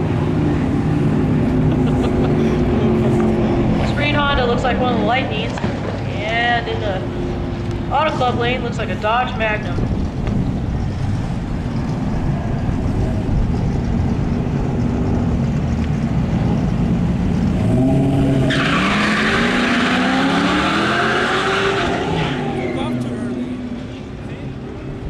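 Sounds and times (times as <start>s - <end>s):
drag racing engines revving: 0.0s - 25.0s
tyres spinning and skidding: 8.0s - 24.2s.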